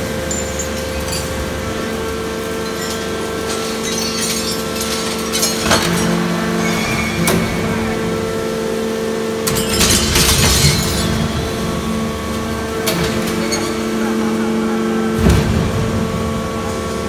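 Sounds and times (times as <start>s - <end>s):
hydraulic power unit humming: 0.0s - 17.0s
scrap metal clattering: 2.5s - 8.1s.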